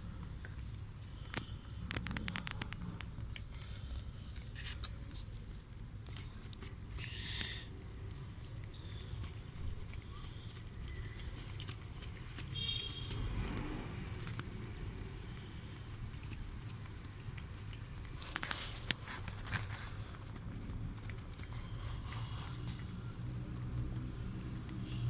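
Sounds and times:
cat licking and gnawing fish: 0.0s - 25.0s.

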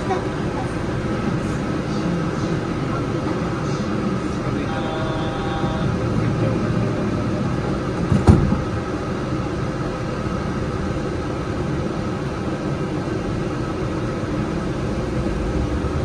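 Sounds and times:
train interior hum: 0.0s - 16.0s
sharp thump: 8.1s - 8.6s.

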